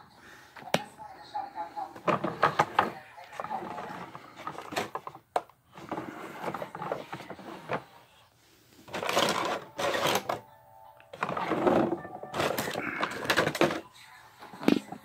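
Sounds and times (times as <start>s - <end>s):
plastic toy parts rattling: 8.9s - 10.4s, 11.2s - 13.9s.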